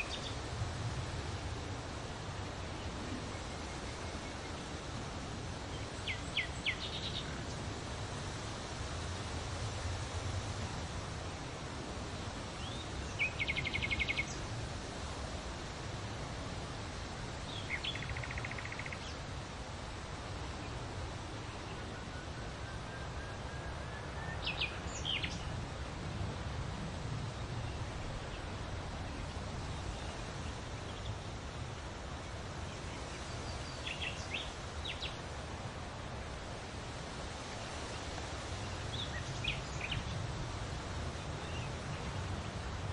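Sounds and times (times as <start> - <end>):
bird chirps: 17.7 - 19.0.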